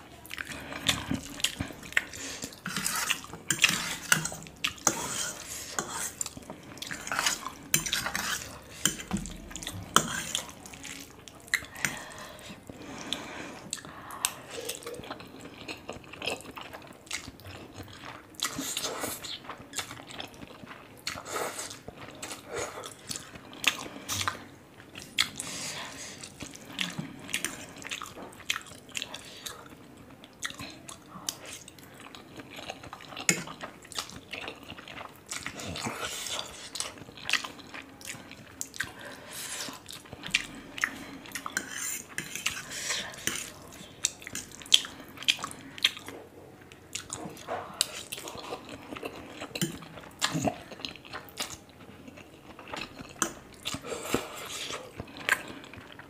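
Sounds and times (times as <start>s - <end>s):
wet chewing and mouth smacks: 26.2s - 56.0s.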